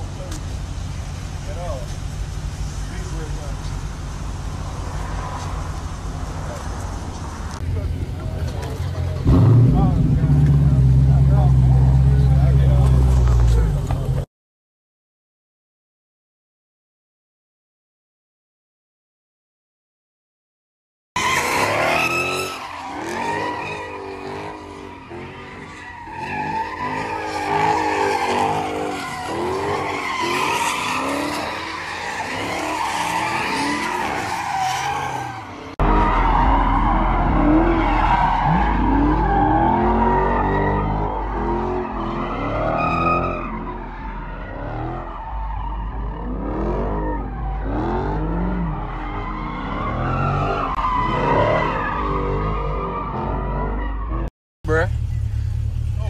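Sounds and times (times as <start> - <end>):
car engines revving: 0.0 - 14.3, 21.2 - 56.0
deep engine rumble: 0.0 - 14.3, 35.8 - 48.9, 54.6 - 56.0
tyres squealing: 21.2 - 48.0.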